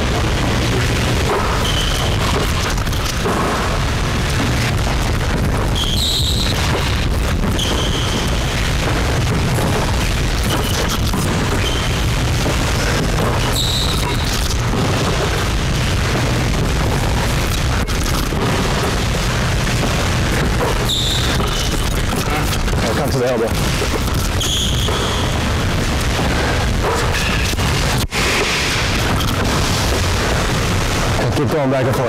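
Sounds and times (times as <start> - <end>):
low rumbling noise: 0.0 - 32.0
shoes squeaking on hardwood court: 1.4 - 2.6, 5.8 - 8.4, 10.4 - 12.0, 13.2 - 14.4, 20.6 - 22.5, 24.0 - 25.4.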